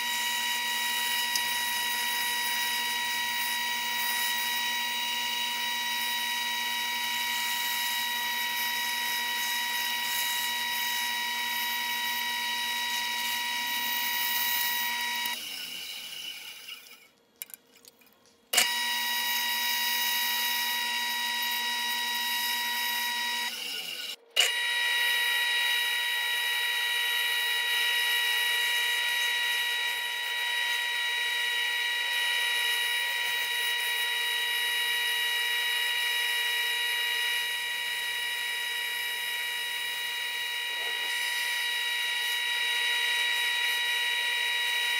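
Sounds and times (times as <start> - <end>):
bandsaw cutting wood: 0.0 - 17.0, 38.6 - 44.9.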